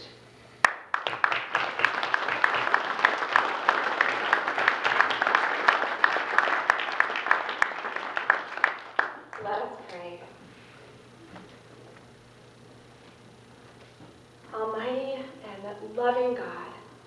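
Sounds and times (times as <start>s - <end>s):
crowd applauding: 0.6s - 9.7s.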